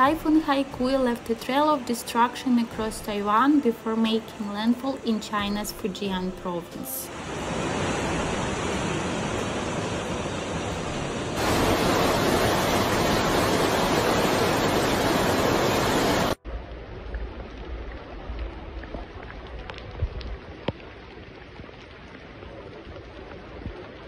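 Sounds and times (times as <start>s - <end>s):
churning river rushing: 7.0s - 16.4s
low rumble: 16.4s - 21.0s.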